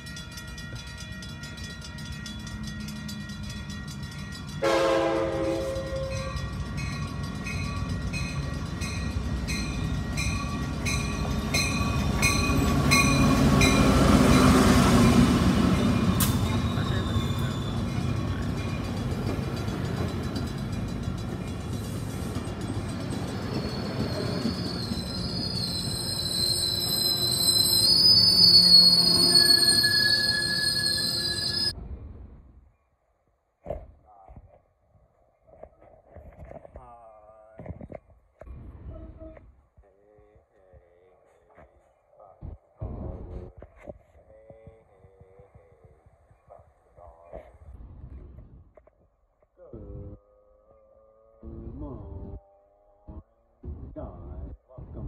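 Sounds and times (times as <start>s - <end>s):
train cars rumbling: 0.0s - 31.8s
train horn: 4.6s - 6.4s
brakes squealing: 10.4s - 31.7s.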